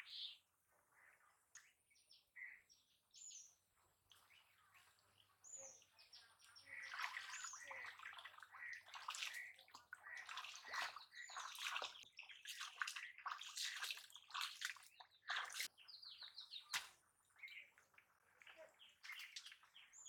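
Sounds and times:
birds chirping: 1.0 - 20.0
water splashing: 6.7 - 15.7.

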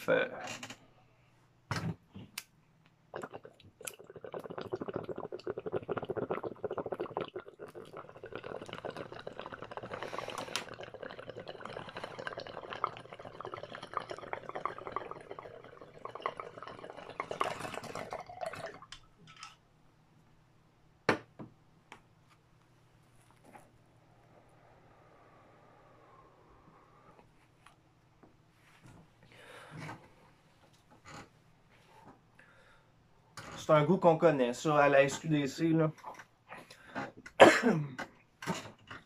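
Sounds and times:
water gurgling in bong: 3.1 - 18.9.

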